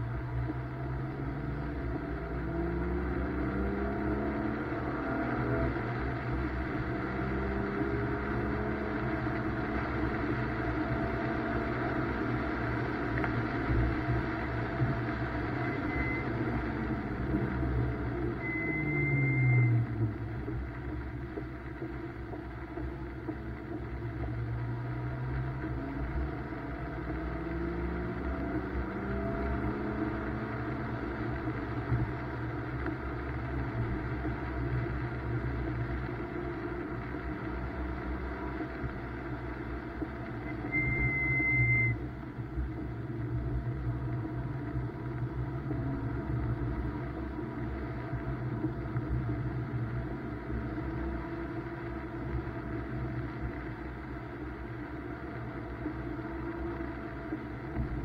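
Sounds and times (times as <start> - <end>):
car engine accelerating: 0.0 - 58.0
road noise: 0.0 - 58.0
high steady squeal: 11.5 - 20.6, 39.8 - 43.5.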